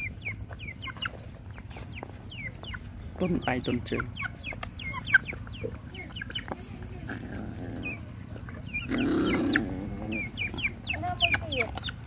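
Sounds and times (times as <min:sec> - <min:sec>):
chickens clucking: 0:00.0 - 0:12.0.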